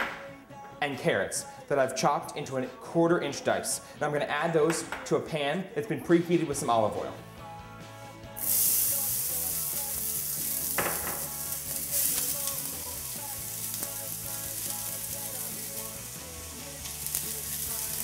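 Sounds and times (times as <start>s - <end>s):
vegetables sizzling in hot oil: 8.4s - 18.0s.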